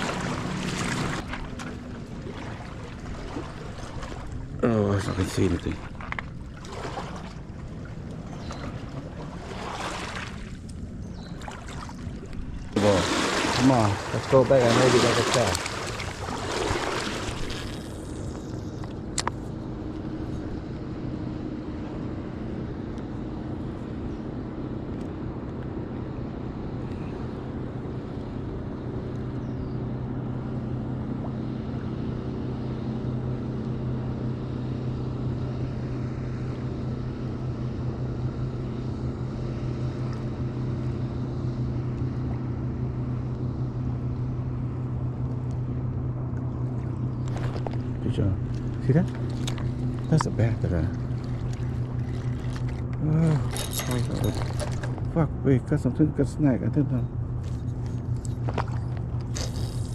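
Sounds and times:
boat motor humming: 0.0s - 59.9s.

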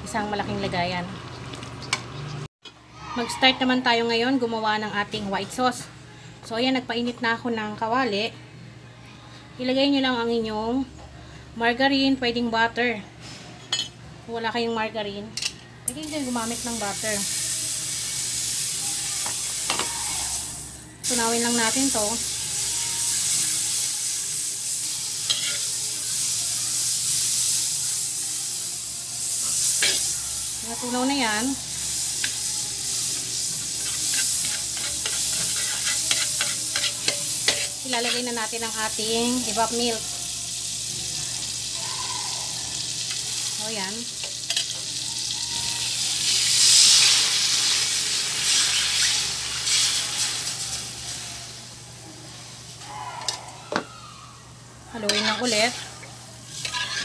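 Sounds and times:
margarine sizzling in a wok: 15.9s - 52.8s, 54.5s - 57.0s
spatula stirring: 25.3s - 25.7s, 33.6s - 38.4s, 55.0s - 57.0s.

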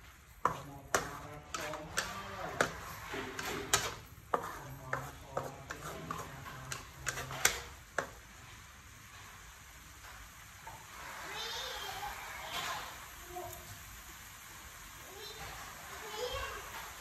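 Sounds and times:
spatula scraping a metal pan: 0.4s - 8.2s.

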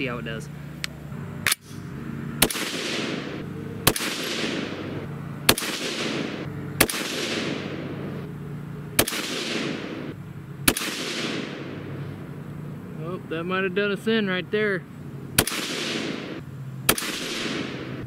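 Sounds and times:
rifle shots with echo: 2.4s - 8.2s, 9.0s - 11.9s, 15.4s - 18.0s.

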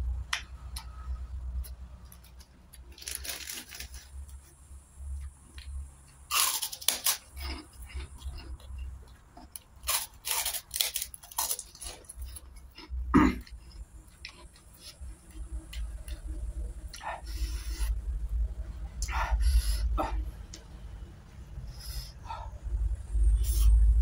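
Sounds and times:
crunching and chewing cracker: 1.6s - 4.6s, 5.2s - 17.1s.

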